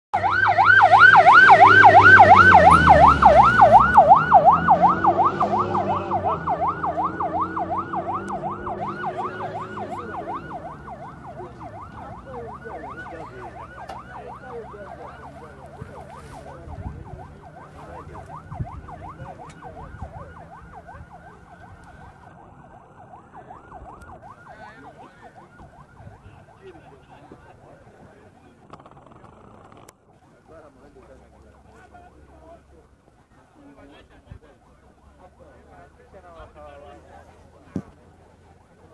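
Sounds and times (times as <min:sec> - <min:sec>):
wailing siren: 0:00.2 - 0:27.7
car engine passing: 0:00.2 - 0:28.6.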